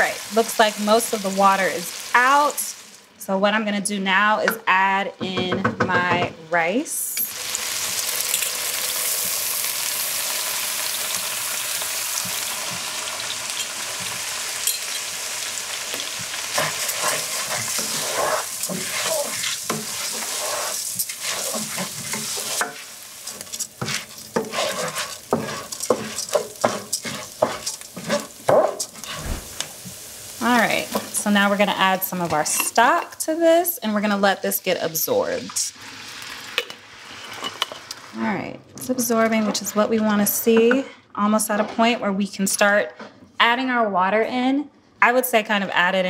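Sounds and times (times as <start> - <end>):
rice sizzling in hot pan: 7.3 - 32.6, 35.5 - 37.4
wooden spatula scraping through grains: 16.5 - 29.4.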